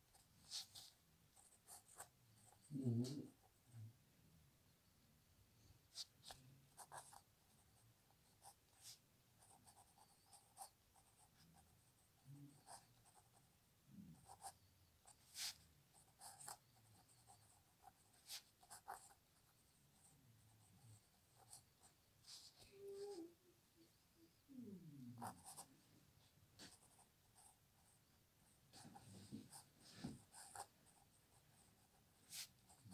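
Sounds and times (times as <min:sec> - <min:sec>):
pen scratching on paper: 0:00.1 - 0:03.5, 0:05.9 - 0:13.4, 0:14.1 - 0:23.1, 0:25.2 - 0:25.7, 0:26.6 - 0:28.0, 0:28.7 - 0:32.9.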